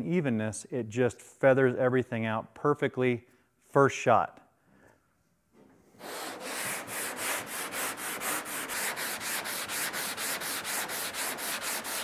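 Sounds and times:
sandpaper sanding strokes: 6.0 - 12.0.

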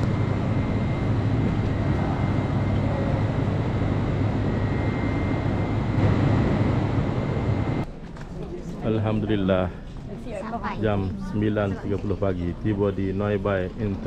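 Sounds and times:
faint high whine: 0.0 - 7.9
jet airliner cabin drone: 0.0 - 14.0.

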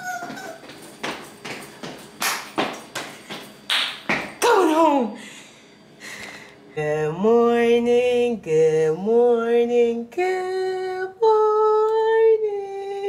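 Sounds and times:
woman singing wordless melody: 6.8 - 13.0.

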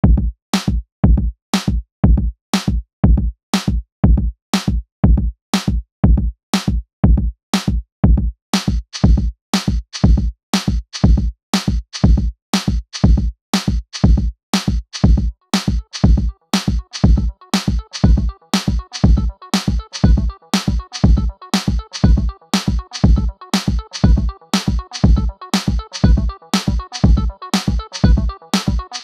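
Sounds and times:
drum machine beat: 0.0 - 29.0
electronic music: 15.8 - 29.0.

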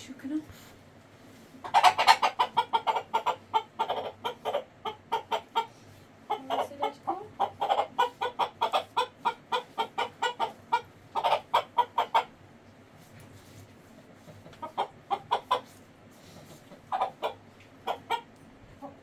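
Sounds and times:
chicken clucking: 1.5 - 12.4, 14.1 - 19.0.

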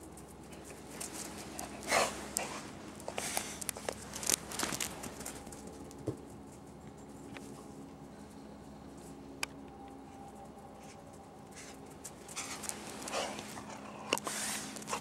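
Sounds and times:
dog panting: 0.5 - 4.0, 11.6 - 15.0.

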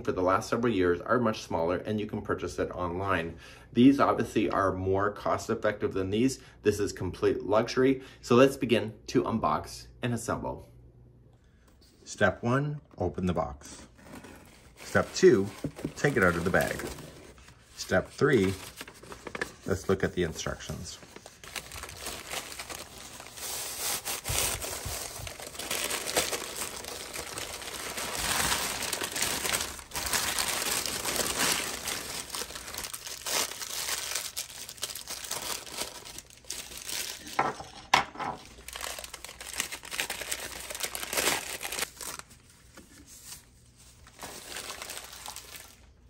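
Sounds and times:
paper crinkling and tearing: 14.0 - 37.4, 38.4 - 46.0.

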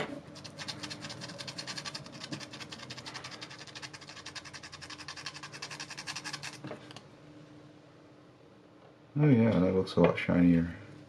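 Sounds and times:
metal contact rubbed on sandpaper: 0.4 - 6.7.

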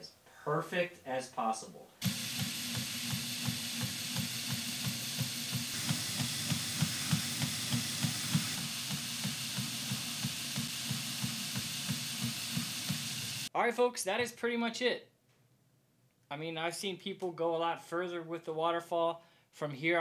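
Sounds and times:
belt grinder grinding steel blade: 2.0 - 13.5.

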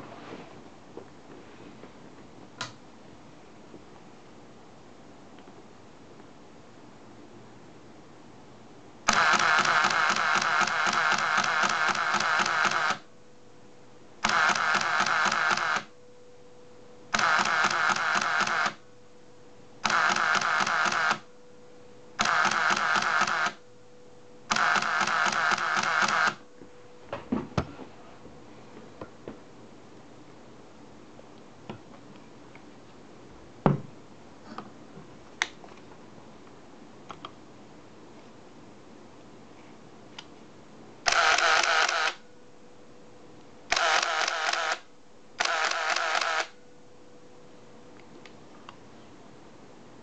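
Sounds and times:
camera motor drive firing: 9.1 - 13.0, 14.2 - 15.9, 17.1 - 18.8, 19.8 - 21.2, 22.2 - 23.6, 24.5 - 26.4, 41.1 - 42.2, 43.7 - 46.6.

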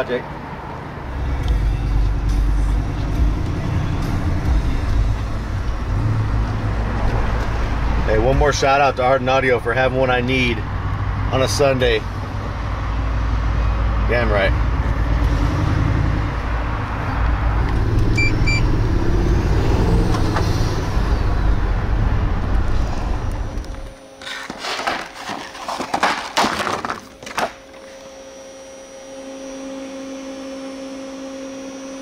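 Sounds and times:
vehicle road noise: 0.0 - 28.5
short high beeps: 18.2 - 18.7.

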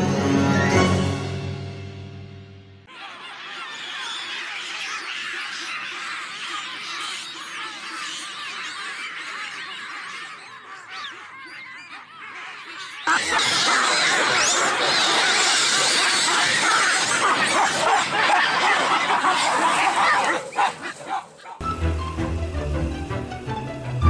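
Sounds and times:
baboons shrieking and barking: 2.9 - 21.6
high animal calls chattering: 2.9 - 21.6.

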